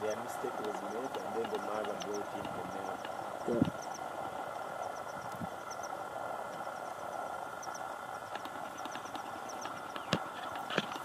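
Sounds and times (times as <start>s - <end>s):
outdoor background hum: 0.0s - 11.0s
sharp clicks: 0.4s - 4.0s, 7.6s - 11.0s.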